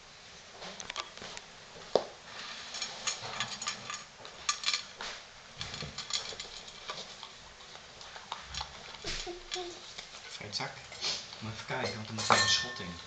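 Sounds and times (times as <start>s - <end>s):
kibble clinking on metal bowl: 2.8s - 4.9s, 5.6s - 7.3s, 10.8s - 13.0s
puppy crunching kibble: 5.9s - 10.4s.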